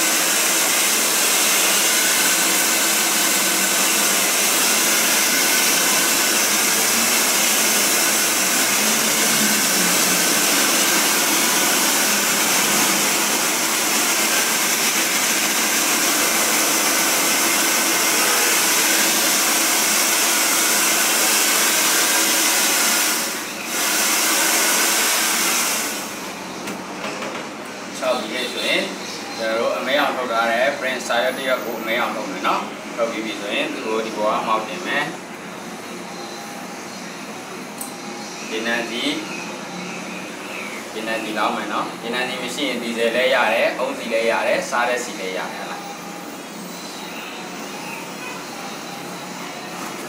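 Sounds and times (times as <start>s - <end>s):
hair dryer blowing: 0.0s - 26.4s.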